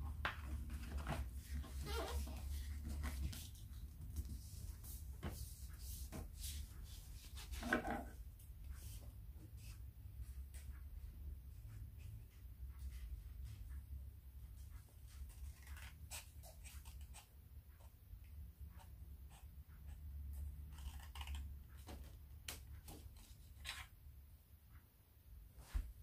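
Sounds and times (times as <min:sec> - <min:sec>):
scissors cutting paper: 0:15.2 - 0:17.3, 0:20.7 - 0:21.6.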